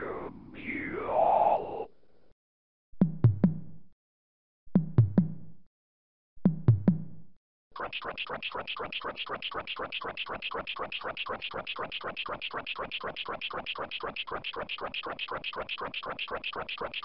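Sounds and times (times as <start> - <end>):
fast rasping sound: 7.8 - 17.0.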